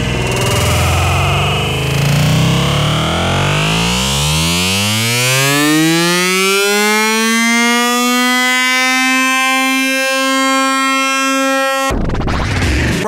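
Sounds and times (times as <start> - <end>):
electronic tone gliding up: 0.0 - 8.4.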